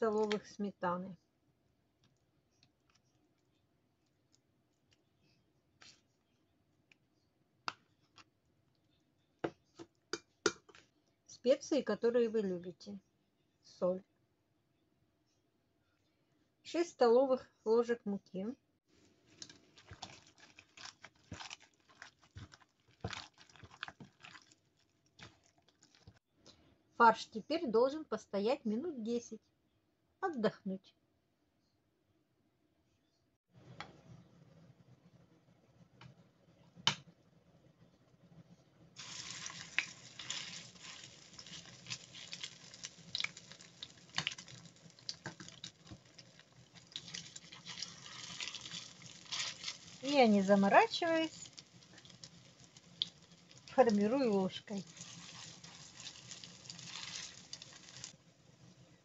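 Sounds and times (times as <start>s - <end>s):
plastic glove crinkling: 19.1s - 26.2s, 39.0s - 58.2s
wet meat mixture squelching: 19.6s - 26.2s, 39.0s - 50.3s, 54.8s - 58.2s.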